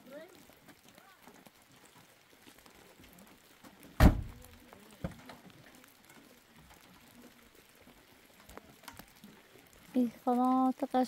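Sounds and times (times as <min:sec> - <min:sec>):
truck door slamming: 0:04.0 - 0:04.4.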